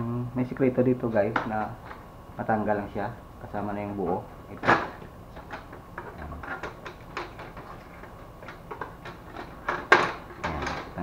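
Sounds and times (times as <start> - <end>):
printer panels clicking and rattling: 4.5 - 11.0.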